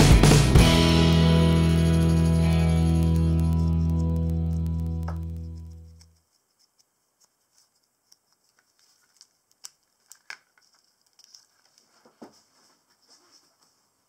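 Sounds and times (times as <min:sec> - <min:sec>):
birch bark rustling and crackling: 0:03.0 - 0:06.2.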